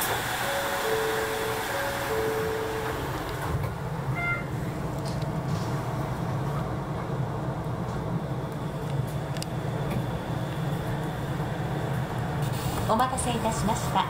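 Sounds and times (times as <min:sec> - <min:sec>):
monorail running rumble: 0:00.0 - 0:14.0
short beep: 0:04.1 - 0:04.6.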